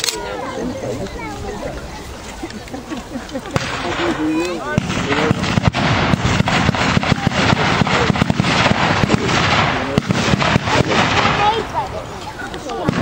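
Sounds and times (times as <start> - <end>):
blank gunshots crackling: 3.5 - 11.9, 12.7 - 13.0.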